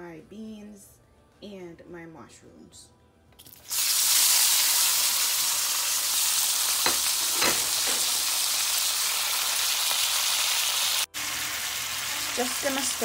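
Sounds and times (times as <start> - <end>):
vegetables sizzling in oil: 3.4 - 13.0.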